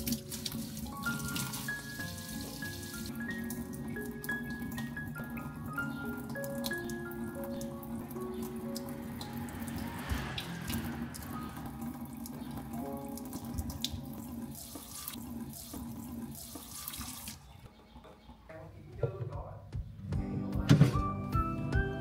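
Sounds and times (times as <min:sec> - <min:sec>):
tap water splashing into sink: 0:12.2 - 0:17.4.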